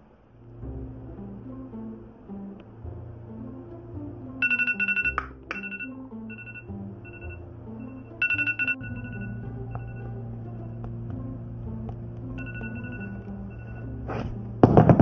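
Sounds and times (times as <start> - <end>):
background music with bass line: 0.4 - 15.0
phone alarm rapid high beeps: 4.4 - 10.1, 12.4 - 13.9.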